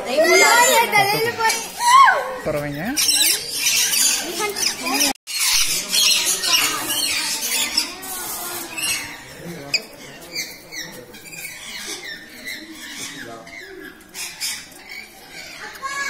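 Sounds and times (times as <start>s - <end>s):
parrots screeching and chirping: 0.0s - 16.0s.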